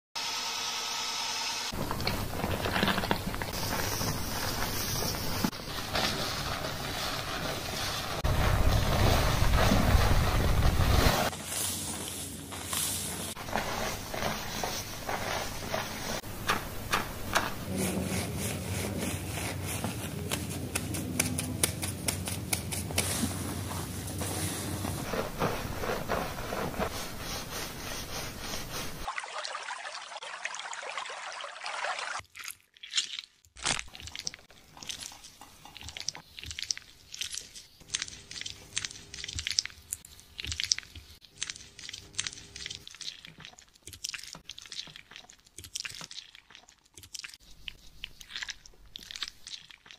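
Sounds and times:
hands scrubbing lathered scalp: 2.2s - 29.1s
water rinsing hair: 27.8s - 33.0s
wet squelches of hands massaging skin: 31.9s - 49.9s.

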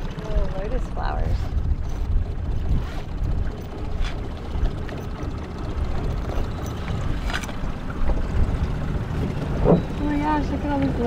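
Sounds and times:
wind on microphone: 0.0s - 4.2s
dinghy motor rumble: 0.0s - 11.0s.

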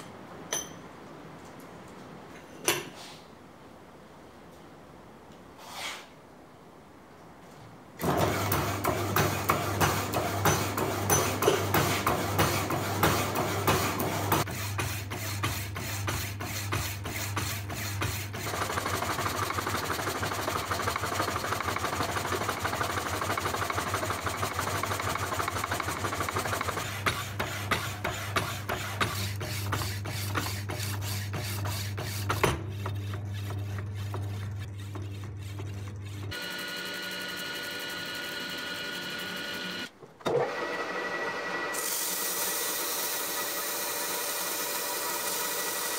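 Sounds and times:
motor hum: 32.7s - 45.9s.

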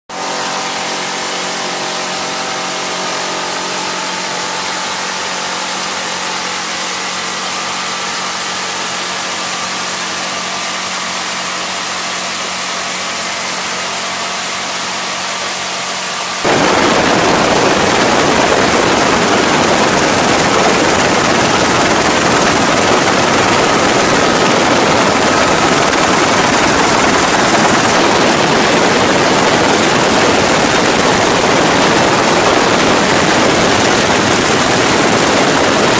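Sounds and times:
rushing wind and rotor noise: 0.1s - 10.2s, 15.9s - 35.9s
helicopter engine and rotor drone: 0.1s - 35.9s
minigun firing: 16.4s - 35.9s.

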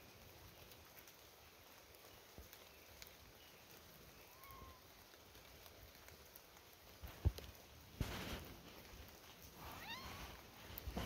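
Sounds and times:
faint ticks: 1.9s - 3.8s.

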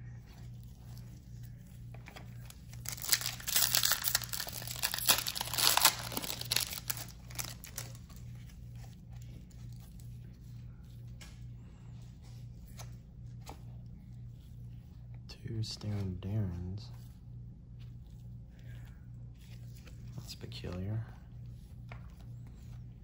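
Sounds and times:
cards rustling: 0.7s - 10.0s
foil wrapper tearing and crinkling: 2.0s - 8.2s.

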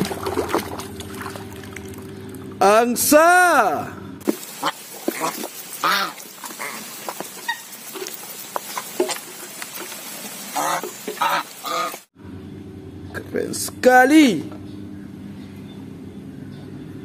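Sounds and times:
geese bills dabbling in feed: 4.3s - 12.1s
goose honking: 4.6s - 7.7s, 10.5s - 12.0s.

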